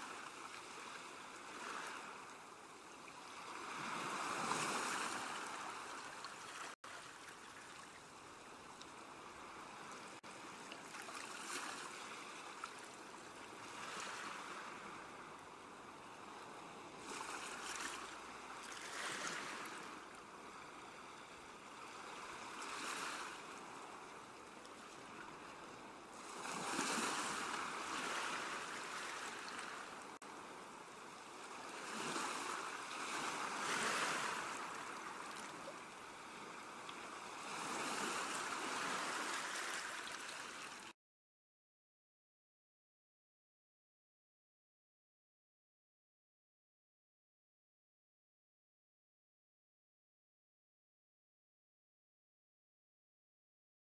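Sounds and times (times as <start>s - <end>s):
ocean waves washing in: 0.0s - 24.3s, 25.0s - 40.9s.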